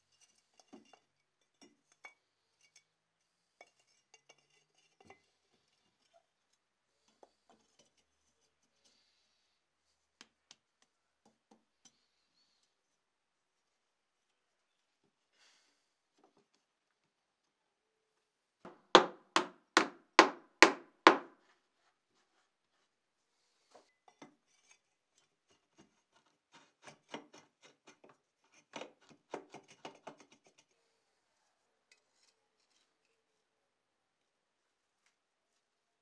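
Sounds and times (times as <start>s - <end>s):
knocks on wooden box: 18.7s - 21.3s.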